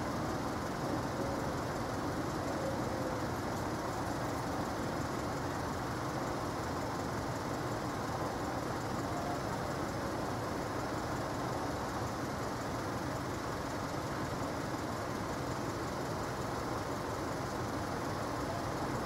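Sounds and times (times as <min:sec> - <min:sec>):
vehicle engines idling: 0:00.0 - 0:19.0.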